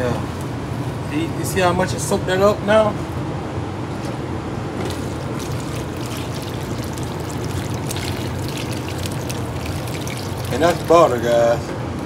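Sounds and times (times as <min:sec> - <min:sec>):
butter pouring onto pan: 0:05.0 - 0:11.2.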